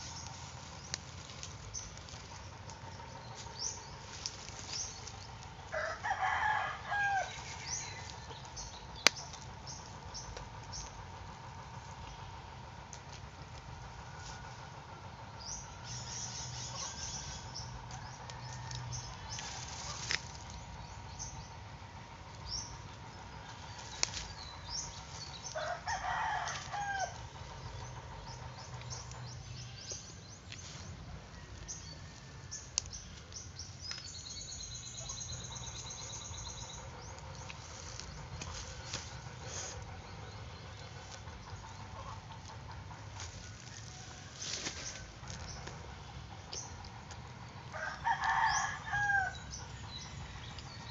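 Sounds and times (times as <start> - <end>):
insect hum: 0.0 - 50.9
small birds chirping: 0.0 - 50.9.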